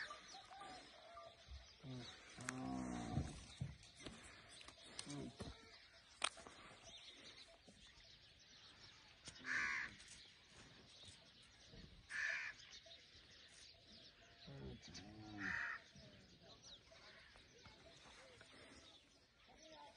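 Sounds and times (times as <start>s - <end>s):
crow cawing: 9.4s - 9.9s, 12.1s - 12.6s, 15.4s - 15.8s.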